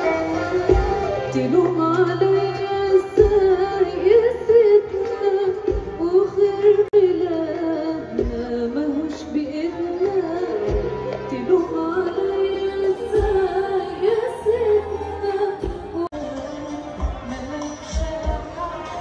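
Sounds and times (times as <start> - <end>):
violins accordion and drums: 0.0 - 6.8, 10.0 - 19.0
woman singing: 0.0 - 19.0.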